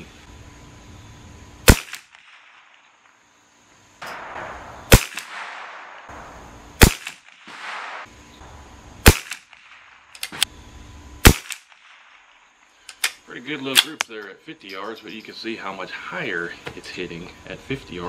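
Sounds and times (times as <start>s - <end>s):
rifle shots with echo: 1.7s - 2.8s, 4.0s - 8.1s, 9.0s - 10.4s, 11.2s - 12.4s.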